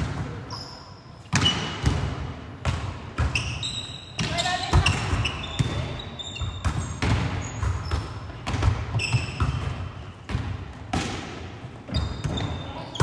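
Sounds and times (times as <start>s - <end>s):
shoe squeaks on sports floor: 0.5s - 1.8s, 3.3s - 8.1s, 8.9s - 9.6s, 11.9s - 13.0s
volleyballs struck: 4.2s - 12.6s.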